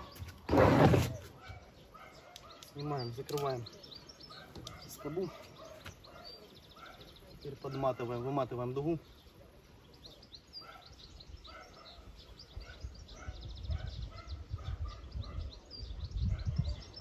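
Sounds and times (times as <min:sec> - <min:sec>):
small birds chirping: 0:00.0 - 0:17.0
wind rumbling on microphone: 0:11.2 - 0:17.0.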